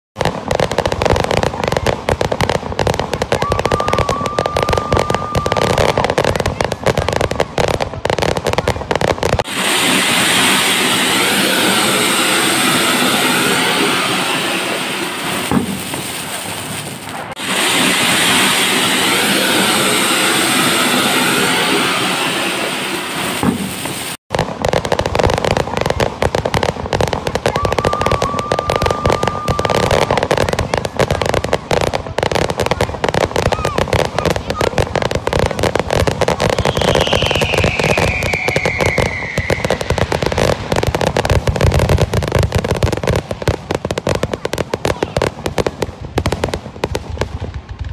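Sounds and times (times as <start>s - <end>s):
fireworks crackling and popping: 0.2s - 47.9s
spark fountain hissing: 9.4s - 24.2s
high whistle: 9.5s - 15.5s, 17.4s - 23.4s, 36.6s - 40.1s.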